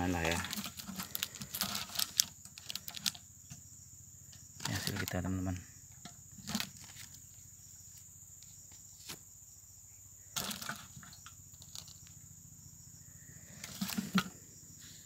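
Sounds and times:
high insect drone: 0:00.0 - 0:15.0
plastic bucket knocks and rustles: 0:10.4 - 0:11.9, 0:13.6 - 0:14.5.

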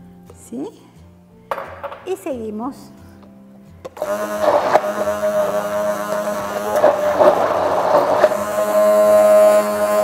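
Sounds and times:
immersion blender running: 0:03.9 - 0:10.0.

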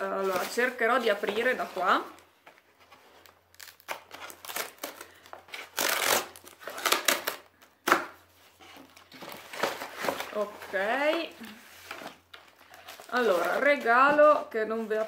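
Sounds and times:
cardboard box ripping open: 0:03.6 - 0:07.4.

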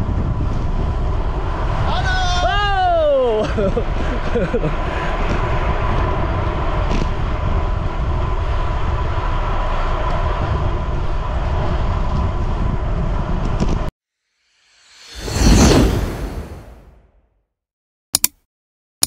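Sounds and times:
bike tyre road rumble: 0:00.0 - 0:13.9
wind rush: 0:00.0 - 0:13.9, 0:14.8 - 0:17.0.

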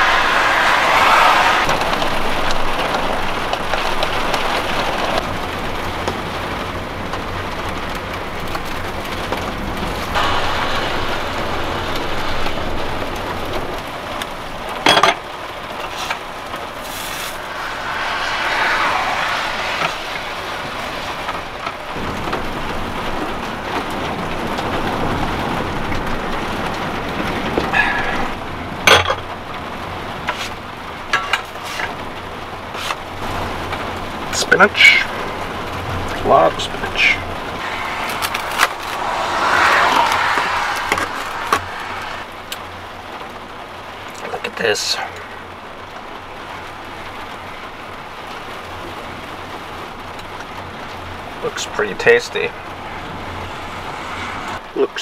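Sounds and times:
heavy rain on vehicle roof: 0:01.8 - 0:16.2, 0:22.0 - 0:36.8, 0:43.0 - 0:52.2.

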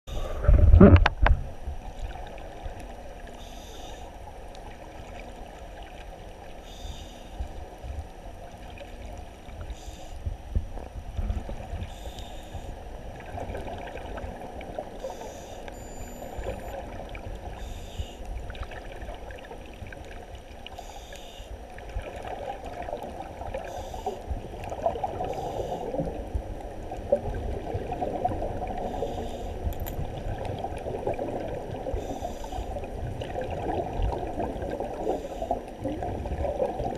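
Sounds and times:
underwater rush and sloshing of water: 0:00.1 - 0:36.9
faint soft ticks: 0:09.1 - 0:12.7.

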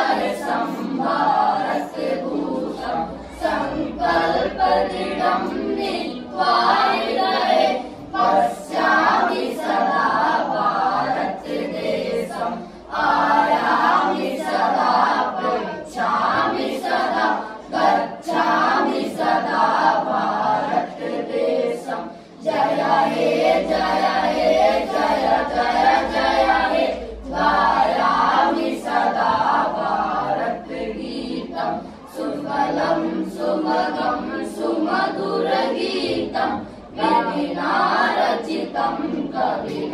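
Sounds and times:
boys singing together: 0:00.0 - 0:39.9.

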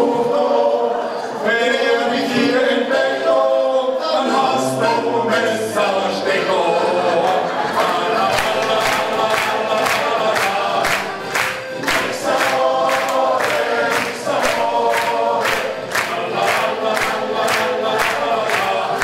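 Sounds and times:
accordion and band: 0:00.0 - 0:19.0
men's choir singing: 0:00.0 - 0:19.0
hand claps: 0:07.3 - 0:19.0.

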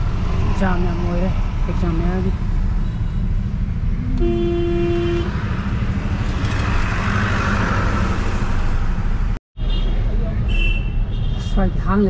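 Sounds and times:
car engine and road rumble: 0:00.0 - 0:12.0
vehicle horn honking: 0:04.1 - 0:05.3, 0:09.6 - 0:11.4.

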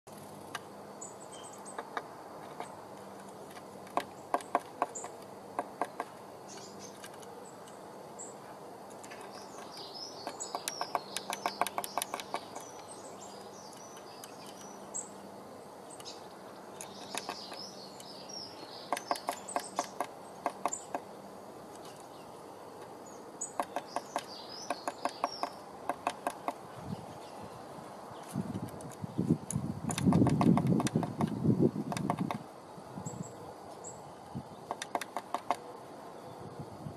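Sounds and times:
high chirping bird calls: 0:01.0 - 0:02.8, 0:04.0 - 0:08.4, 0:09.1 - 0:21.2, 0:21.8 - 0:28.4
bird pecking on wood: 0:01.7 - 0:06.2, 0:08.9 - 0:12.8, 0:16.8 - 0:17.7, 0:18.9 - 0:21.1, 0:22.8 - 0:26.7, 0:28.5 - 0:32.4, 0:34.7 - 0:35.6.

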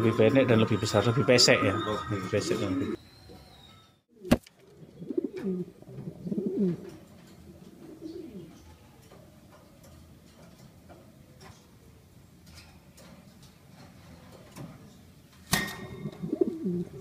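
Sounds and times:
pigeon cooing: 0:01.5 - 0:03.0, 0:04.1 - 0:08.8, 0:15.8 - 0:17.0.

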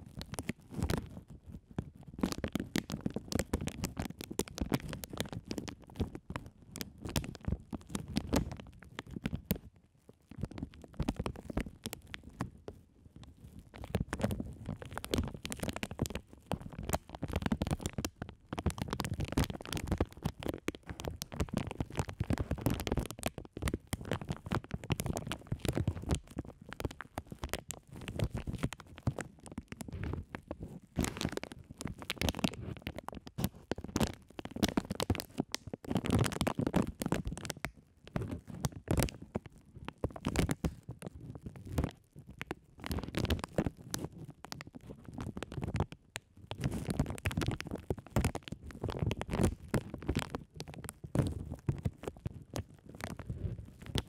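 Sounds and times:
low rumble of plastic on microphone: 0:00.0 - 0:54.0
plastic bag crackling: 0:13.4 - 0:39.2, 0:42.8 - 0:45.9, 0:46.5 - 0:54.0.

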